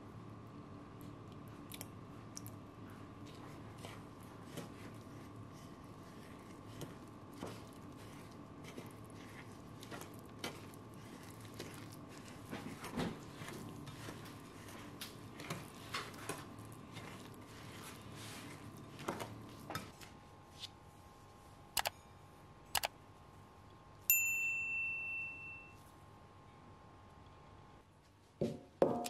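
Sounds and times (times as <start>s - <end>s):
spatula scraping batter in bowl: 3.2s - 20.0s
bright ringing ding: 24.1s - 25.8s.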